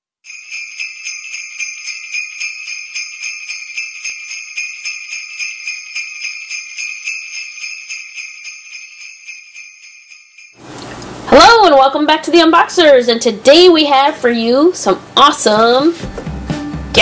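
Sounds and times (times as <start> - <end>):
jingle bells shaking: 0.2 - 10.6.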